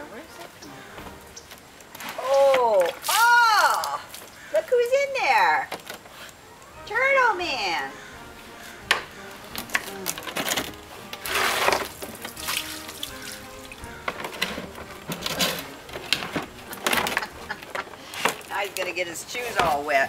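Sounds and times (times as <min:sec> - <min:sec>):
water splashing onto paving: 0:11.2 - 0:14.0.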